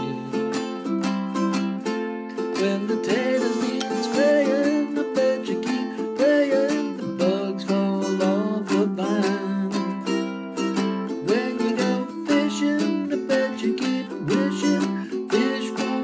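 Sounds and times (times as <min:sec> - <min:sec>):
man singing: 0:00.0 - 0:00.8, 0:02.4 - 0:10.3, 0:11.0 - 0:16.0
ukulele strumming: 0:00.0 - 0:16.0.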